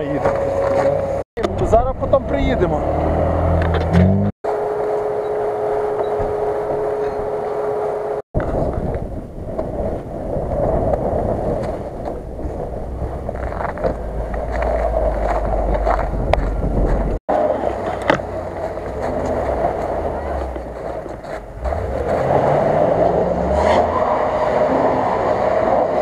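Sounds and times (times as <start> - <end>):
steady whine: 4.5 - 10.1
suv engines running: 10.6 - 26.0.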